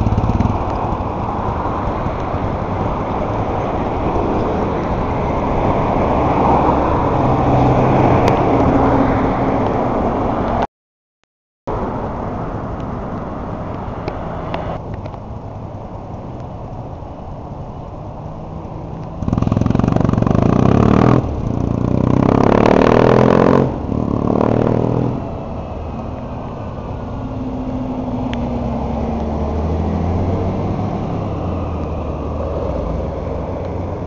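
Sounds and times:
motorcycle engine revving: 0.0s - 5.0s, 19.1s - 25.7s
bus engine and tyres passing: 0.0s - 10.7s, 11.7s - 34.0s.

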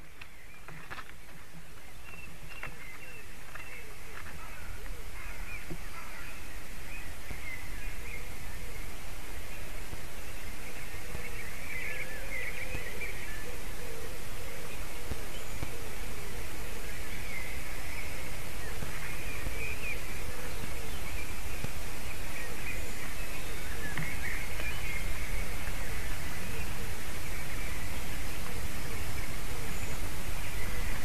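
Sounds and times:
steady background hiss: 0.0s - 31.0s
eagle calling: 2.5s - 31.0s.

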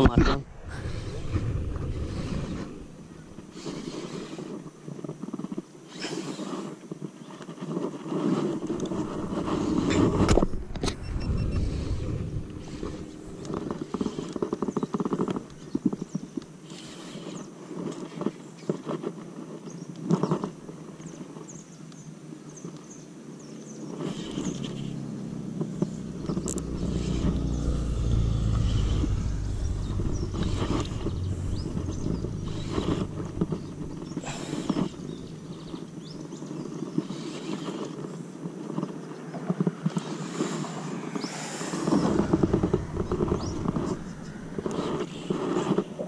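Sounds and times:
wind buffeting microphone: 0.0s - 5.8s, 6.9s - 16.4s, 24.1s - 37.2s, 38.0s - 46.0s.

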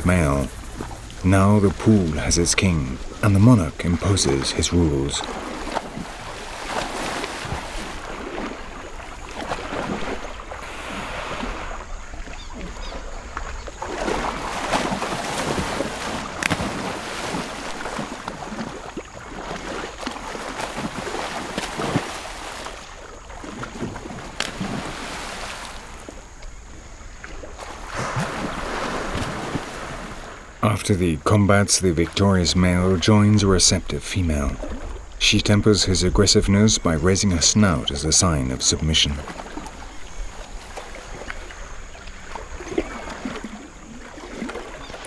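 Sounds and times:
crocodiles splashing in water: 4.1s - 26.4s, 27.3s - 30.4s, 39.1s - 45.0s.

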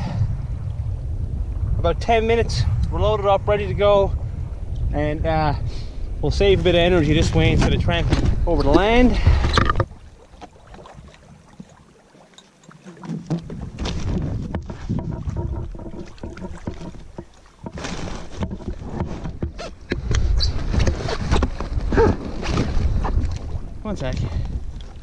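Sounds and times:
low rumble: 0.0s - 10.2s.

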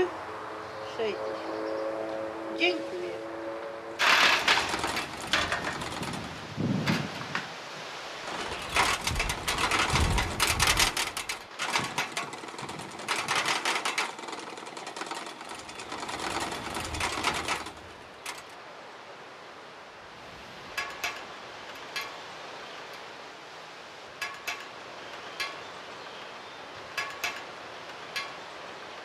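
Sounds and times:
windmill rattling as it spins: 4.0s - 19.0s, 20.1s - 29.0s.

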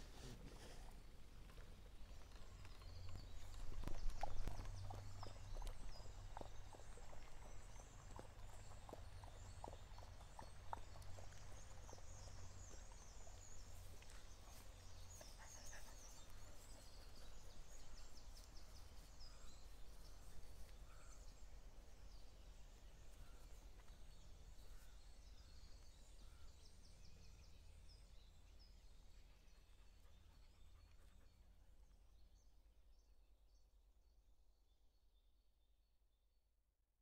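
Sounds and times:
small birds chirping: 0.0s - 32.6s.

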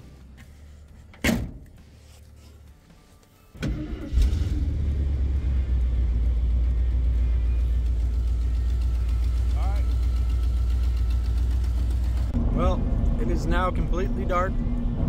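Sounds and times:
engine cranking: 3.6s - 12.4s
car engine running: 3.8s - 15.0s.

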